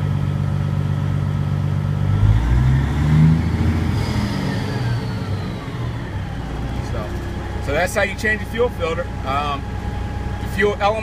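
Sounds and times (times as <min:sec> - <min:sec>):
diesel engine running: 0:00.0 - 0:11.0
high whine: 0:02.4 - 0:11.0.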